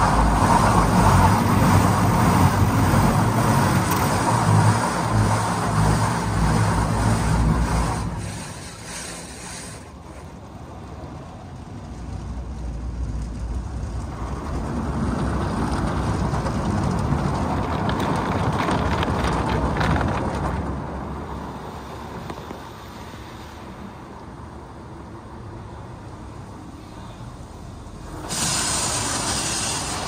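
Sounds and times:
car wash rushing noise: 0.0 - 30.0
water spattering: 28.2 - 30.0.

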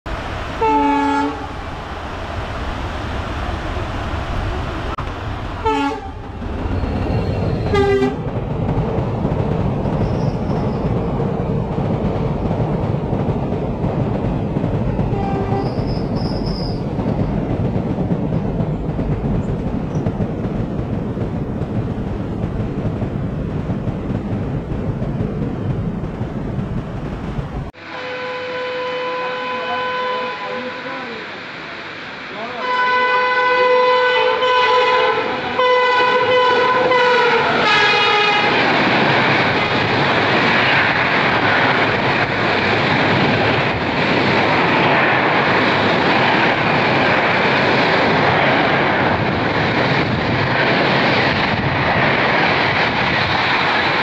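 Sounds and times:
train coaches rumbling on track: 0.1 - 54.0
train horn blasts: 0.6 - 1.5, 5.6 - 6.2, 7.6 - 8.2, 15.1 - 15.8, 27.8 - 30.9, 32.6 - 38.6
rain: 29.8 - 35.6.

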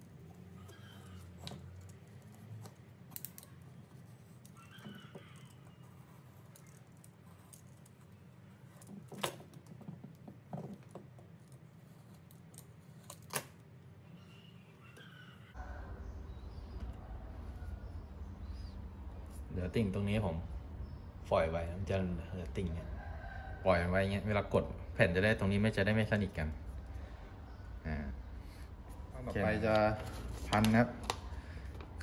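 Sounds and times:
tape rustling: 0.0 - 13.7.

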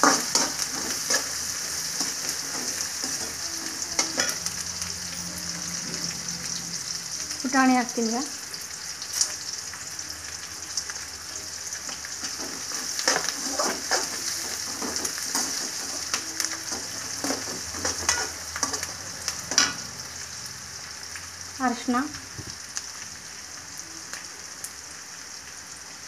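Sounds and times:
spatula scraping a metal pan: 0.0 - 4.5, 12.2 - 19.8
food sizzling in hot oil: 0.0 - 26.0.

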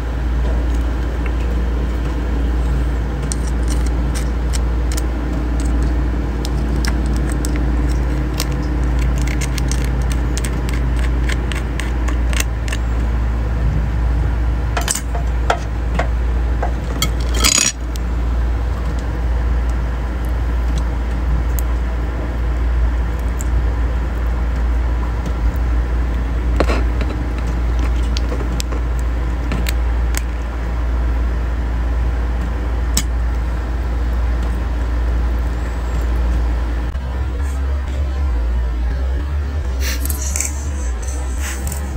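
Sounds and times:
low hum: 0.0 - 41.9
crab shells cracking: 3.2 - 12.9
sharp clatter: 14.8 - 17.8.

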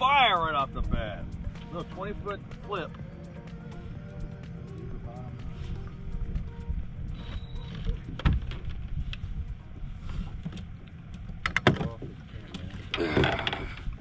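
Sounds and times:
low steady rumble: 0.0 - 14.0
sharp knocks and clatter: 10.4 - 12.1.

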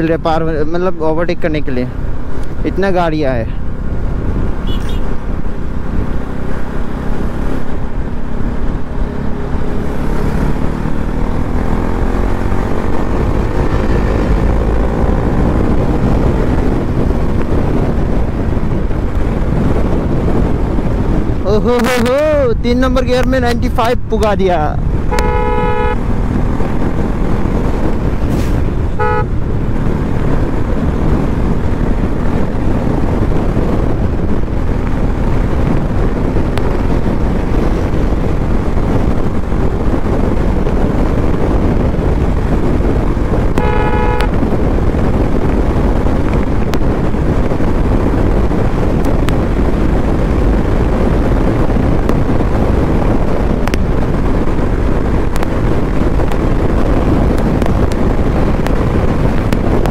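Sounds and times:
wind rushing on microphone: 0.0 - 59.9
motorcycle engine running at speed: 1.9 - 22.7, 23.3 - 59.9
vehicle horn honking: 4.6 - 5.2, 25.1 - 26.0, 29.0 - 29.4, 43.6 - 44.4.

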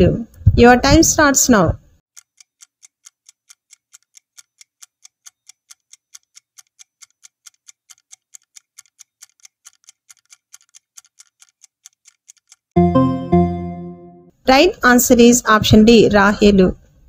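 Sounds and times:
clock ticking: 2.1 - 12.8.

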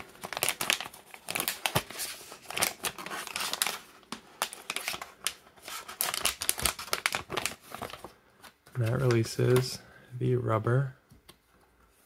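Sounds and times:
plastic pouch tearing: 0.0 - 8.1.

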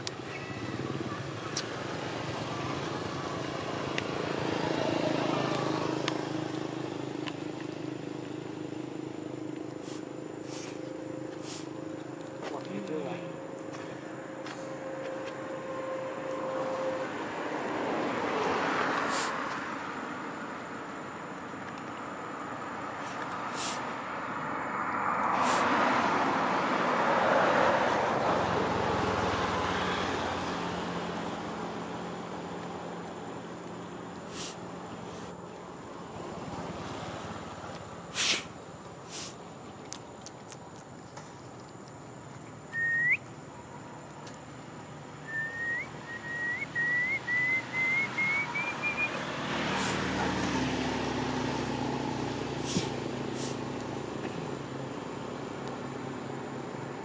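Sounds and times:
vehicle passing: 0.0 - 40.3, 41.3 - 57.0
low engine hum: 0.0 - 57.0
bird whistled call: 42.7 - 43.3, 45.2 - 49.2.

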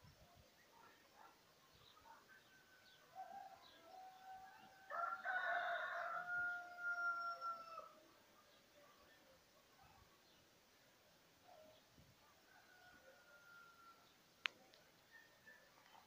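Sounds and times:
rooster crowing: 3.3 - 8.0, 12.6 - 14.0.

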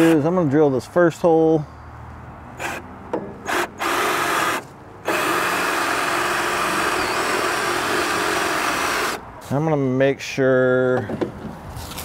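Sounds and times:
power drill boring into wood: 2.6 - 2.8, 3.4 - 9.2.

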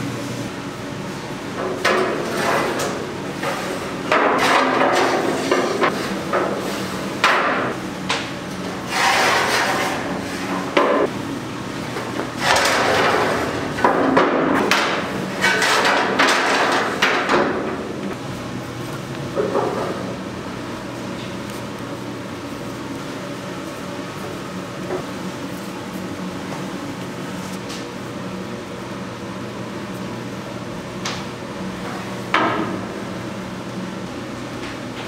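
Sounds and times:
metal grates scraping on rails: 2.1 - 3.8, 8.8 - 10.8, 12.4 - 13.8, 15.3 - 17.0.

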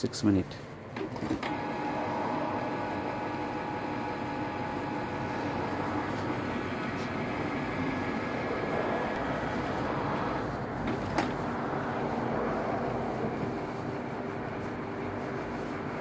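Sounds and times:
printer motors whirring: 0.4 - 16.0.

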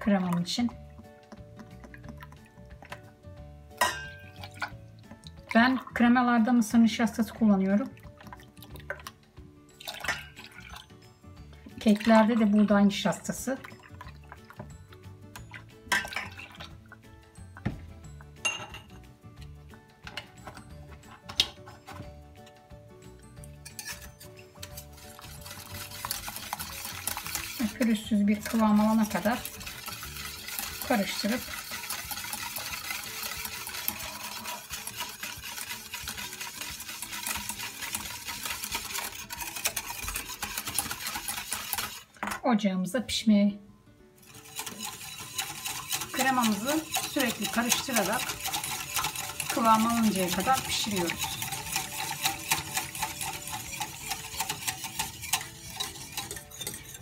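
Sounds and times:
background music: 0.0 - 57.0
milk pouring into metal pot: 0.2 - 17.7, 23.5 - 42.2, 44.2 - 57.0
glass clinking on pot: 3.8 - 4.7, 9.8 - 10.8, 15.3 - 16.7, 18.4 - 19.0, 23.6 - 24.5.

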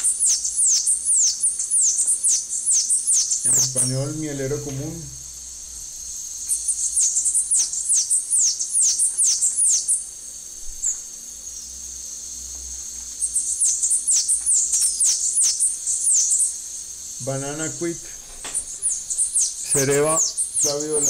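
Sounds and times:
bird song high rapid notes: 0.0 - 4.0, 13.2 - 16.6, 18.6 - 21.0.

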